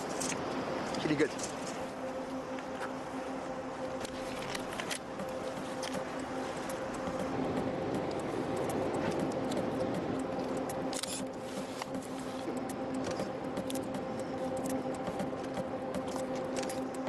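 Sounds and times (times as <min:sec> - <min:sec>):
low drone with overtones: 0:00.0 - 0:17.0
cloth and gloves rustling: 0:11.3 - 0:13.2.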